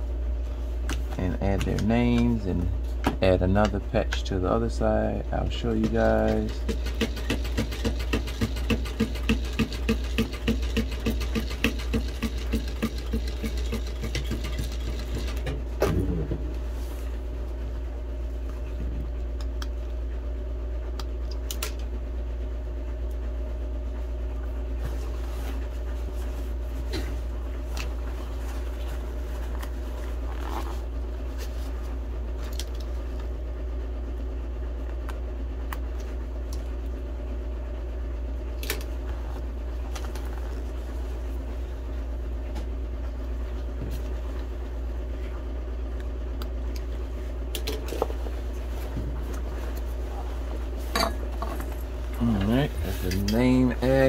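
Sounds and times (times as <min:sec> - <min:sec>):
steady hum: 0:00.0 - 0:54.0
sewing machine stitching: 0:05.8 - 0:15.5.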